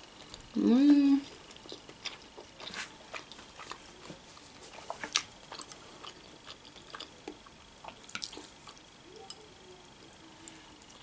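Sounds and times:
person chewing food: 0.0 - 9.4.

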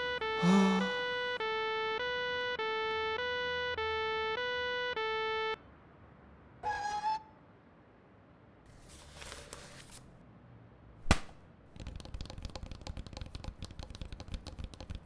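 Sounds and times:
electronic two-note tone: 0.0 - 5.6
short squeak: 6.6 - 7.4.

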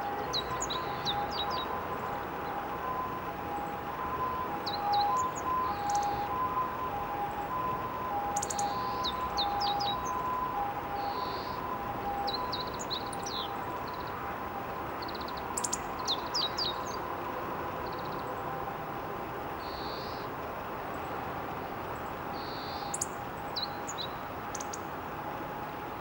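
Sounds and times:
distant two-tone siren: 0.0 - 26.0
bird singing high notes: 8.4 - 10.4, 11.0 - 14.1.

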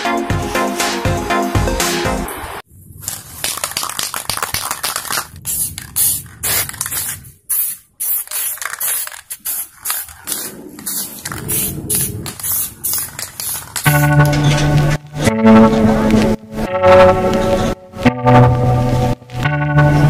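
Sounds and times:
spray paint can hissing: 3.0 - 14.3.

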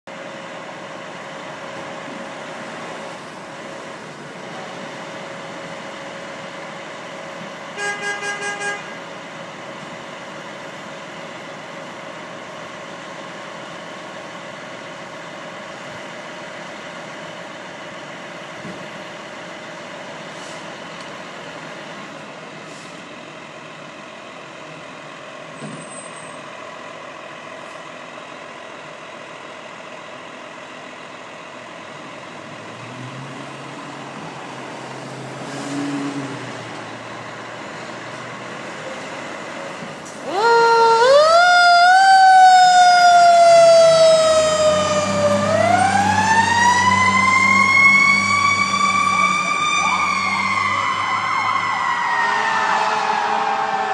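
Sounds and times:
fire engine idling: 0.1 - 32.7, 36.7 - 53.9.

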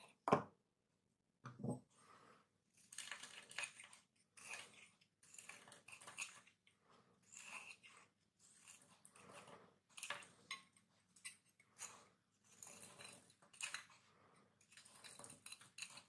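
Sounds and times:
knife shaving bar of soap: 1.8 - 16.0.

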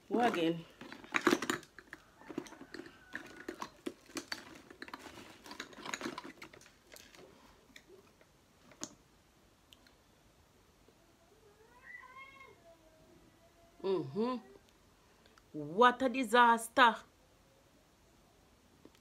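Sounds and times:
makeup containers clicking: 0.2 - 7.2.

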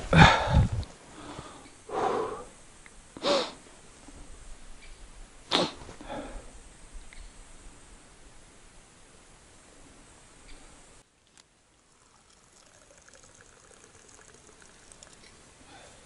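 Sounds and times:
person sniffing: 1.2 - 2.5, 3.2 - 3.6, 5.5 - 6.4.

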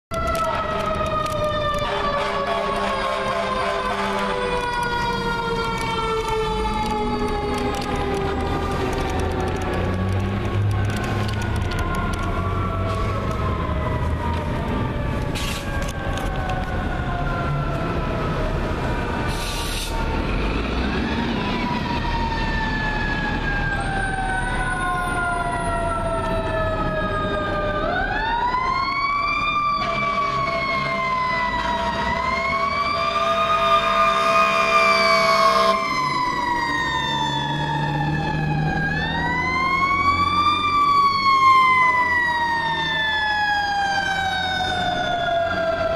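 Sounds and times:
mechanical siren wailing: 0.1 - 45.9
air horn blast: 1.8 - 4.5, 33.2 - 35.9.

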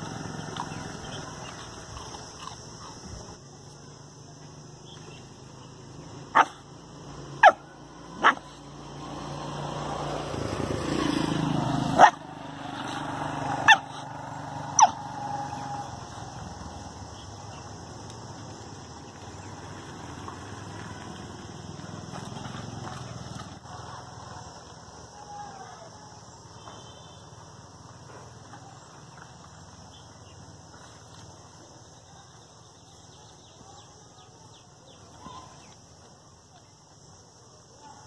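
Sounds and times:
dog barking: 6.3 - 6.6, 7.4 - 8.6, 12.0 - 12.2, 13.6 - 14.0, 14.8 - 15.0.

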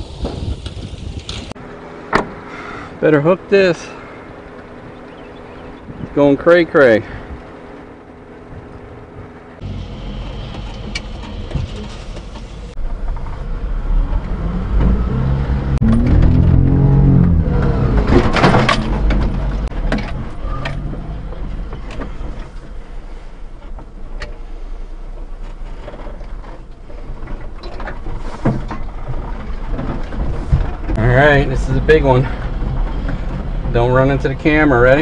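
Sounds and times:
truck engine revving: 7.8 - 22.3, 29.0 - 35.0
knocks and rattles: 15.8 - 22.8, 25.3 - 35.0.

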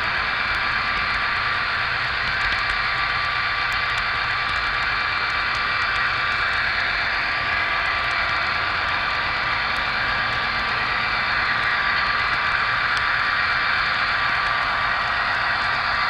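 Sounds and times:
model train motor whirring: 0.0 - 16.0
faint clicks: 2.3 - 6.6.

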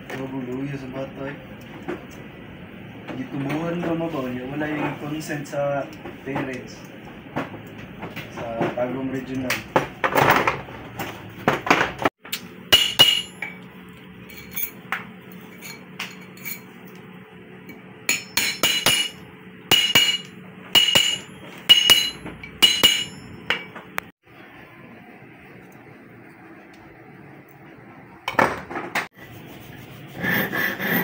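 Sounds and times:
hammer tapping metal ring: 12.7 - 13.6, 18.1 - 23.7.

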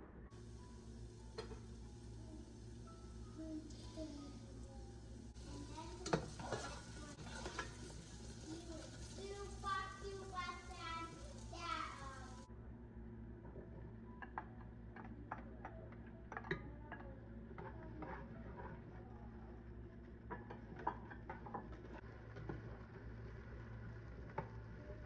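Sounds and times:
steady low hum: 0.0 - 25.0
spatula scraping a pot: 6.0 - 9.1.

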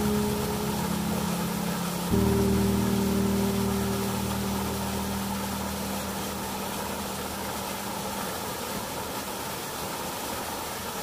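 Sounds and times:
low background music chord: 0.0 - 8.4
water rushing over rocks: 0.0 - 11.0.

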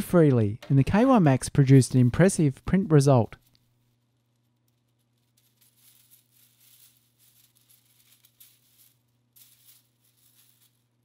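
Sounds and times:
plastic links rattling: 3.4 - 11.0.

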